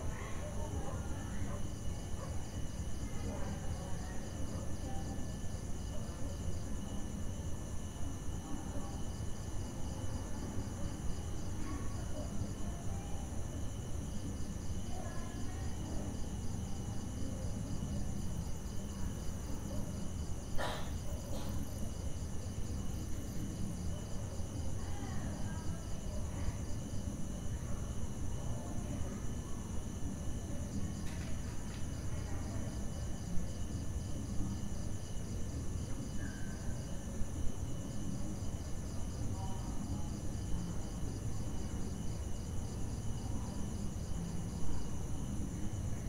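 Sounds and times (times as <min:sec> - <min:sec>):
crickets chirping: 0:00.0 - 0:46.0.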